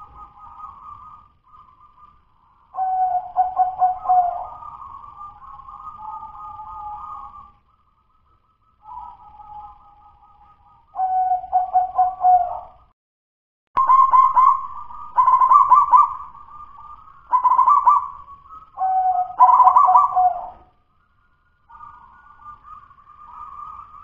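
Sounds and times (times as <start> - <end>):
dove cooing: 0.0 - 2.1, 2.7 - 7.5, 11.0 - 12.8, 13.8 - 20.7.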